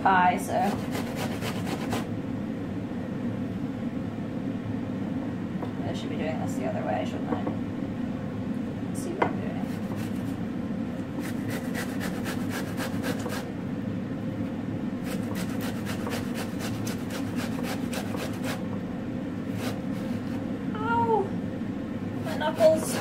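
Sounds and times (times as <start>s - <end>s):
pear grated on metal grater: 0.6s - 2.1s, 9.6s - 10.4s, 11.2s - 13.5s, 15.0s - 18.7s, 19.5s - 20.4s, 22.3s - 23.0s.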